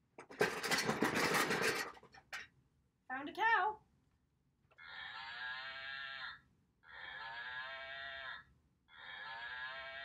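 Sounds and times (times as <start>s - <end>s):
toy cow mooing: 4.8s - 10.0s.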